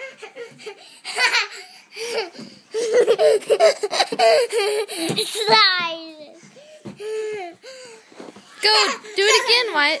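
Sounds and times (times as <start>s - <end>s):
young child laughing: 0.0s - 5.7s.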